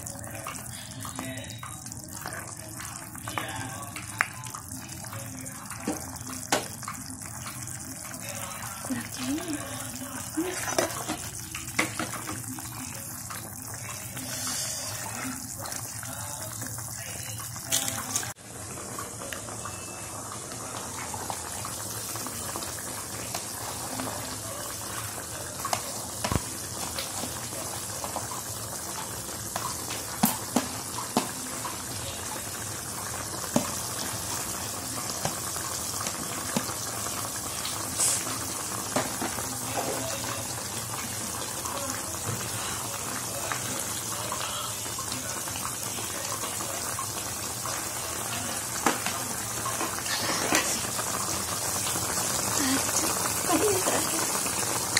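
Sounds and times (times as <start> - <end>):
soup hissing in a pan: 13.7 - 17.0, 20.2 - 54.9.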